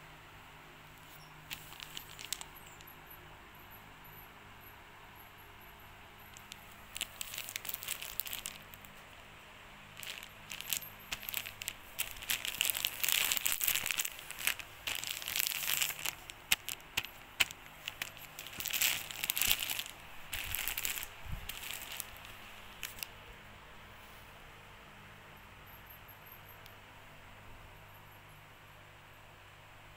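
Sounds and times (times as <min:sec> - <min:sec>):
plastic wrapping crinkling: 0:01.0 - 0:02.9, 0:06.3 - 0:09.1, 0:09.9 - 0:23.1.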